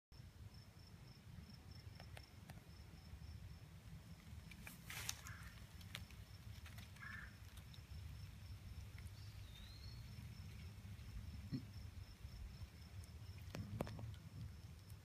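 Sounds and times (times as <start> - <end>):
insect chirping: 0.2 - 15.0
rustle of dry leaves: 3.8 - 11.2.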